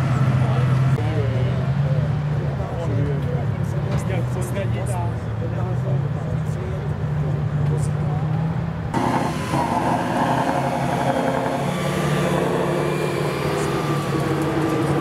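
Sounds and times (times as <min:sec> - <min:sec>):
truck diesel engine running: 0:09.0 - 0:15.0.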